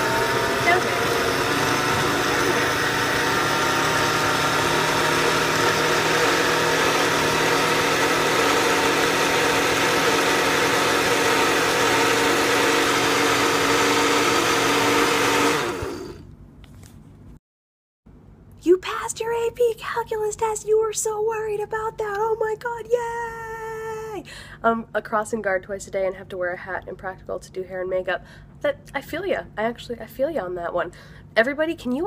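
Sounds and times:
blender motor whirring: 0:00.0 - 0:16.3.

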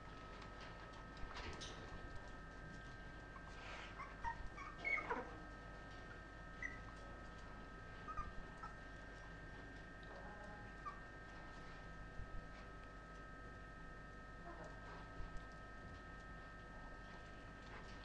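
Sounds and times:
puppies whimpering: 0:03.4 - 0:05.4, 0:06.6 - 0:07.0, 0:08.0 - 0:08.8.

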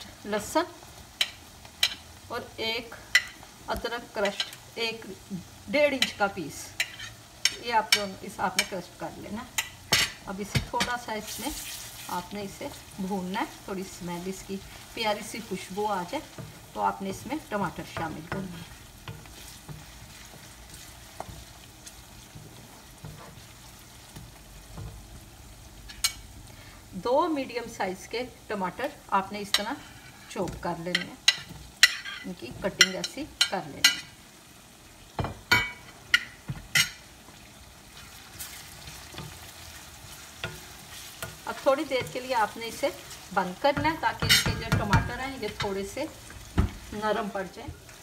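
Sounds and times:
vegetables sizzling in oil: 0:00.0 - 0:48.0
wooden spoon stirring: 0:14.6 - 0:25.1, 0:38.0 - 0:47.0
wooden spoon scraping pan: 0:16.2 - 0:24.3.

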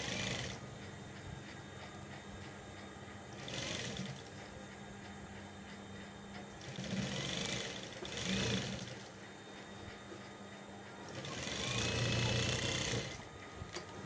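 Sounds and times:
sewing machine stitching: 0:00.0 - 0:00.6, 0:03.4 - 0:04.3, 0:06.6 - 0:09.1, 0:11.1 - 0:13.2
steady hum: 0:00.0 - 0:14.0.

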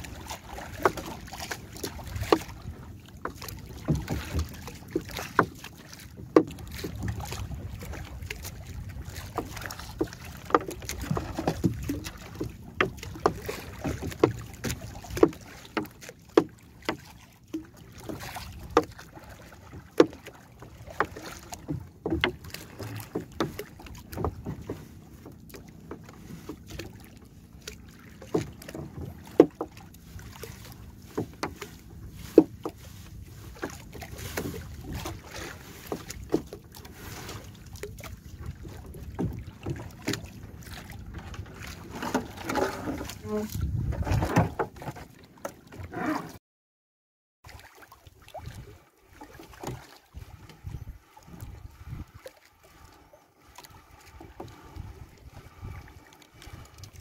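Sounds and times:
wind: 0:00.0 - 0:46.4, 0:47.4 - 0:57.0
knocks on wooden canoe hull: 0:06.2 - 0:07.3, 0:10.4 - 0:19.0, 0:20.9 - 0:24.8, 0:28.2 - 0:29.8
water washing: 0:39.0 - 0:44.6.

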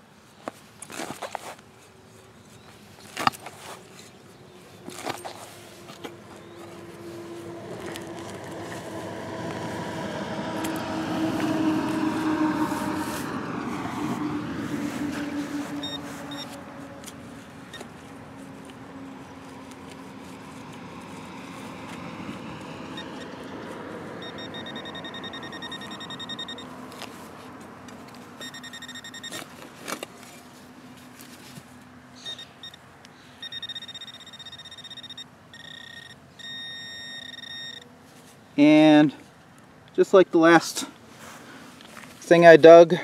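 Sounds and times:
hand digger scraping soil: 0:00.4 - 0:22.8
pinpointer pulsing electronic tone: 0:15.7 - 0:16.6, 0:24.2 - 0:26.7, 0:33.4 - 0:37.9.

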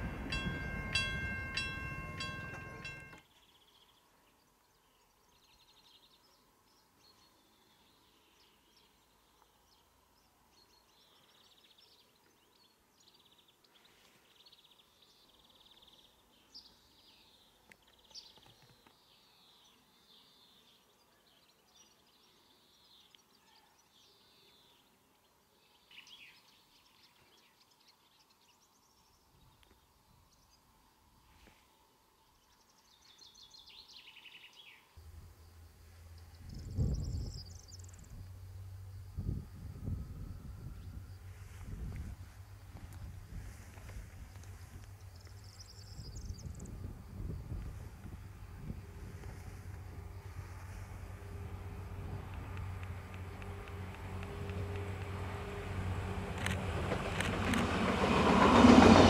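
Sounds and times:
small birds chirping: 0:35.9 - 0:38.3.

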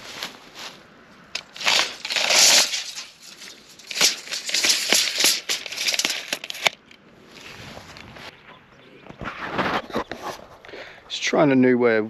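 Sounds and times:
tape measure blade retracting: 0:01.3 - 0:07.0.

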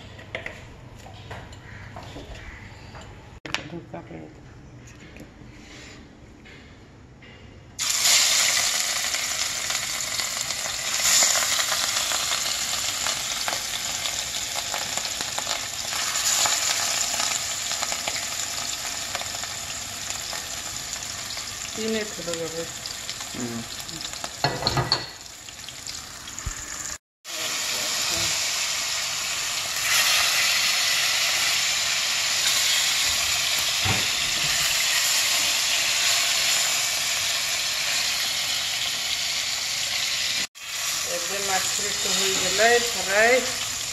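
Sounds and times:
fish sizzling in hot oil: 0:07.8 - 0:43.9.

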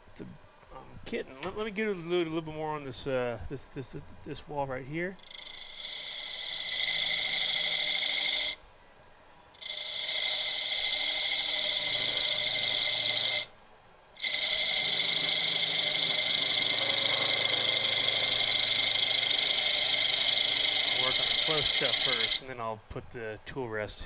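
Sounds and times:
gouge cutting wood on lathe: 0:05.2 - 0:08.6, 0:09.6 - 0:13.5, 0:14.2 - 0:22.4.

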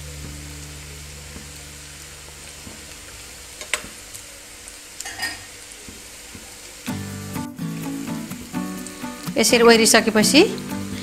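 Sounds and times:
low hum: 0:00.0 - 0:04.4
food sizzling in hot oil: 0:00.0 - 0:11.0.

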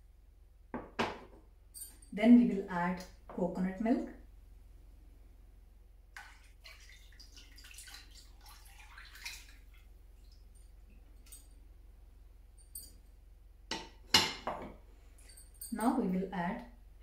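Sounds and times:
liquid trickling and splashing: 0:06.2 - 0:11.5.

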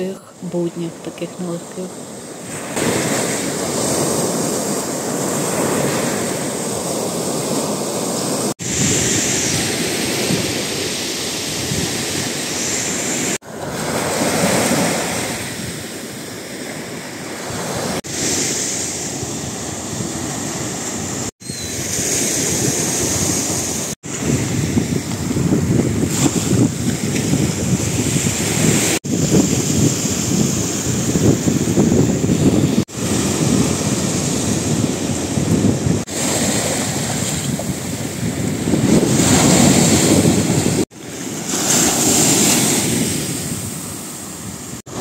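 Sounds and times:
sea waves breaking on beach: 0:00.8 - 0:45.0
wind buffeting microphone: 0:02.5 - 0:12.6, 0:19.1 - 0:45.0.

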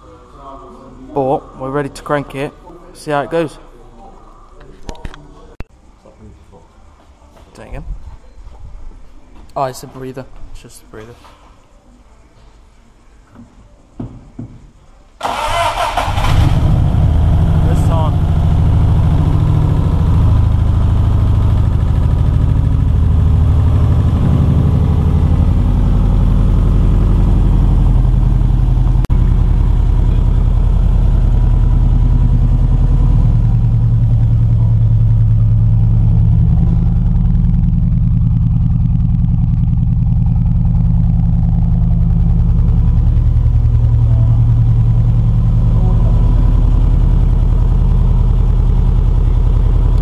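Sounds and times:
car engine idling: 0:15.2 - 0:50.0.

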